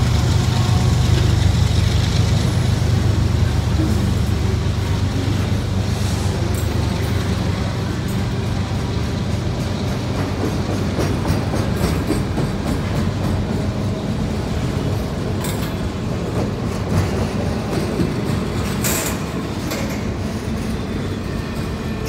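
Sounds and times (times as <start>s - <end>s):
train wheels rumbling on rails: 0.0s - 22.0s
sharp clacks of wheels: 6.5s - 13.8s.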